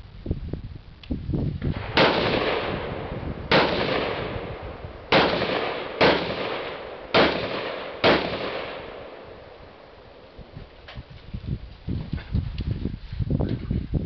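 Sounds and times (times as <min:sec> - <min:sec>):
rifle shots with echo: 0:01.7 - 0:10.3.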